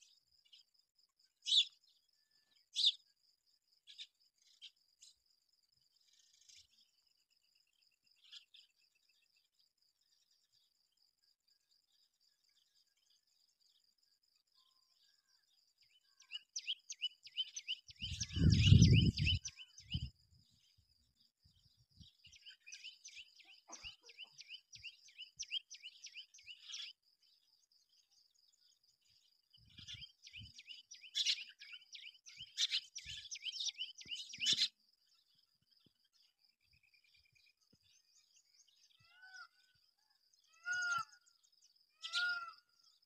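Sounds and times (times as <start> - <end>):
birds chirping: 1.4 - 3.0, 15.1 - 39.6.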